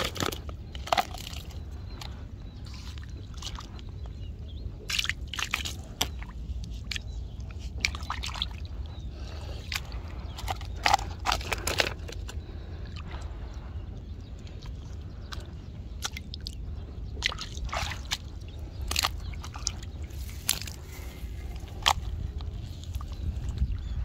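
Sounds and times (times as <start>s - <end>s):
low rumble: 0.0s - 24.0s
water sloshing and splashing: 0.0s - 24.0s.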